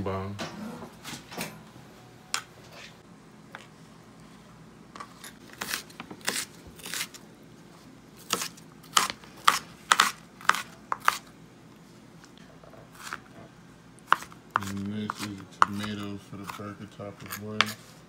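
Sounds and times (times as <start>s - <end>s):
knife chopping on cutting board: 8.3s - 11.3s, 14.1s - 17.8s.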